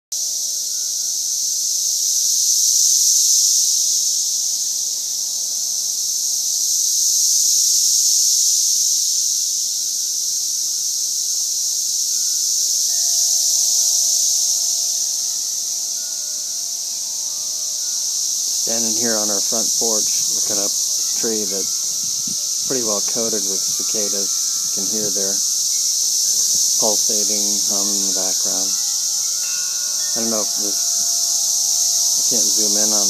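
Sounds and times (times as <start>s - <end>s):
cicadas pulsating hum: 0.1s - 33.0s.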